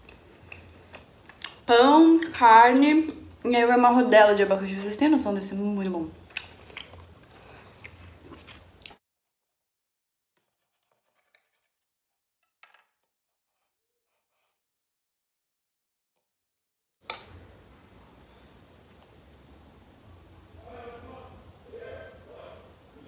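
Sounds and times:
chewing food: 0:00.0 - 0:02.4, 0:06.2 - 0:09.0.

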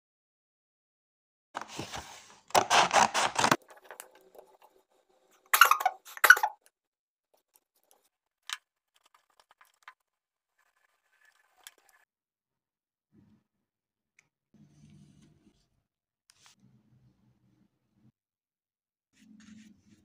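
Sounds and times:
rustling and scraping handling noise: 0:01.6 - 0:06.3.

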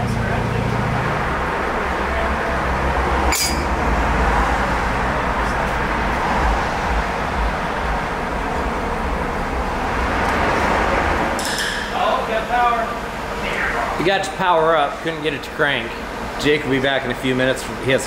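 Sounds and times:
road traffic: 0:00.0 - 0:18.0
truck engine idling: 0:00.0 - 0:18.0
sharp clink: 0:03.3 - 0:03.7.

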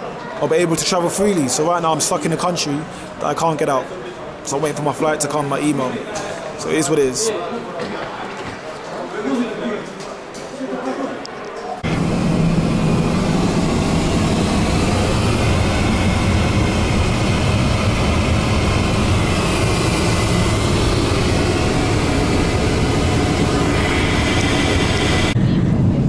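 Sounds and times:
airliner cabin drone: 0:11.8 - 0:26.0
low hum: 0:11.8 - 0:26.0.

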